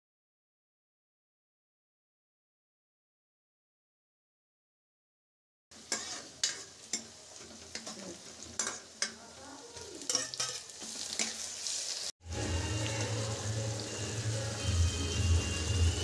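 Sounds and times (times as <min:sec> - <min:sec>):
onions sizzling in a pan: 0:05.7 - 0:16.0
ladle clinking and scraping pan: 0:05.8 - 0:09.2, 0:10.1 - 0:11.6.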